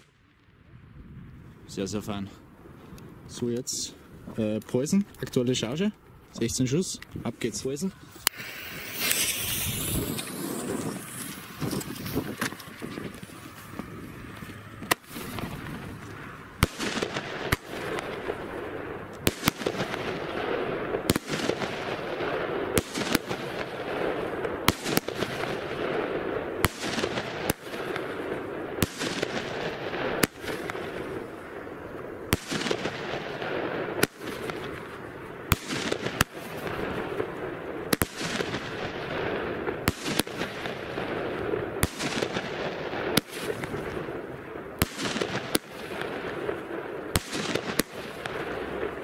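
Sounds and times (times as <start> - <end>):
firework shots: 6.4 - 49.0
firework hiss: 8.0 - 13.8, 19.2 - 31.7.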